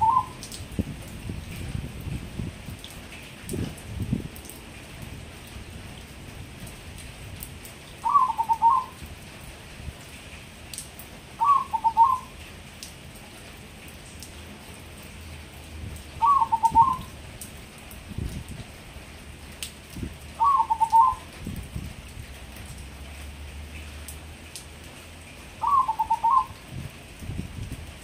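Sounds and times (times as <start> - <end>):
dove cooing: 0.0 - 0.4, 8.0 - 9.0, 11.4 - 12.3, 16.2 - 17.1, 20.4 - 21.2, 25.6 - 26.6.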